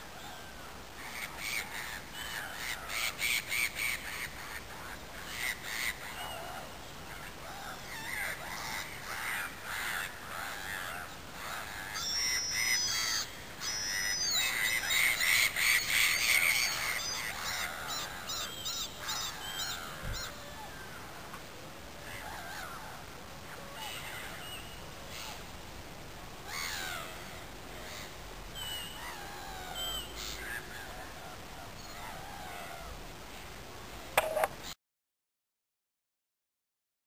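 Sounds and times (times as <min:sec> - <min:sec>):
gulls calling: 0:00.2 - 0:21.4, 0:26.4 - 0:33.0.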